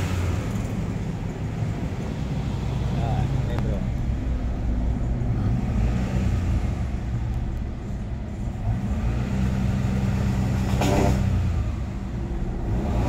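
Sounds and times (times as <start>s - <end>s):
car engine revving: 5.0s - 13.0s.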